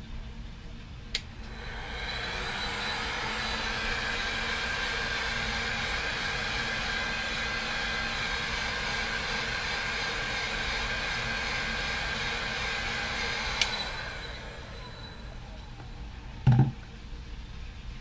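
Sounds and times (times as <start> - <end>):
heat gun blowing air: 1.4 - 15.7
heat gun switch click: 13.6 - 13.8.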